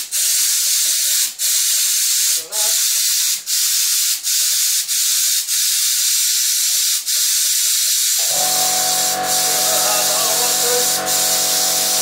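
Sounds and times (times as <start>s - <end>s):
compressed air hissing: 0.0s - 12.0s
motor humming: 8.2s - 12.0s.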